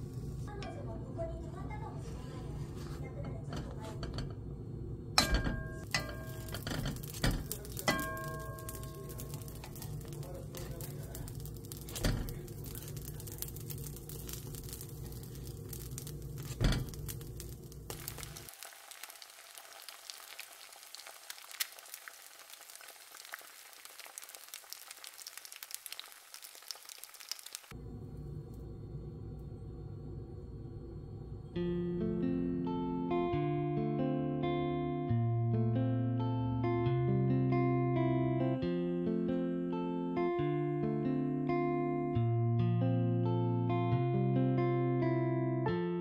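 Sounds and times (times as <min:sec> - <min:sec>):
bread sizzling in a frying pan: 0:05.3 - 0:27.8
steady low hum: 0:27.8 - 0:33.0.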